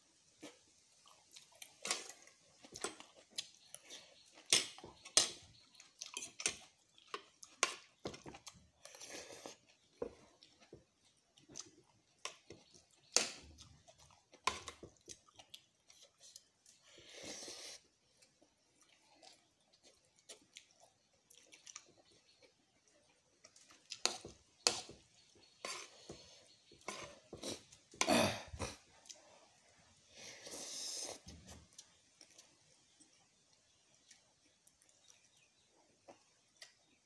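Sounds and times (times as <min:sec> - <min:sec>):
person chewing noodles: 0:00.3 - 0:29.7.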